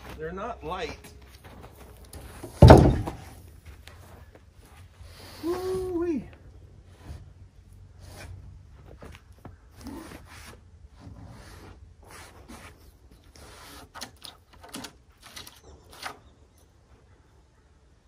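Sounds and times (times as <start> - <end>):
heavy wood slabs scraping: 0.0 - 3.4.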